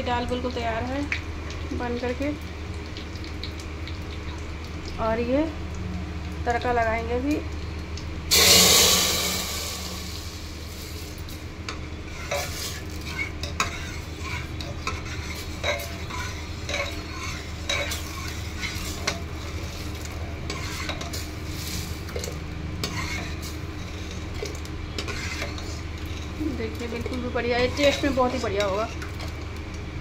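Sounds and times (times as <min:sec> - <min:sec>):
metal ladle scraping a pot: 0:08.3 - 0:29.0.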